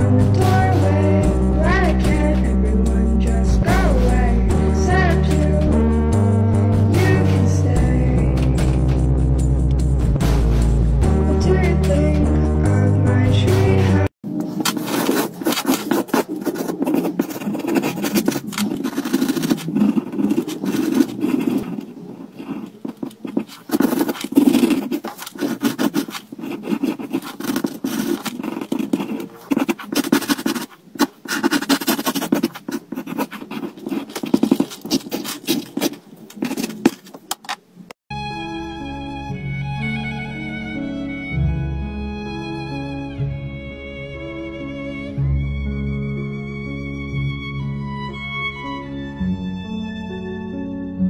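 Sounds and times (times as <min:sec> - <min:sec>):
pencil scratching on paper: 0:14.5 - 0:37.6.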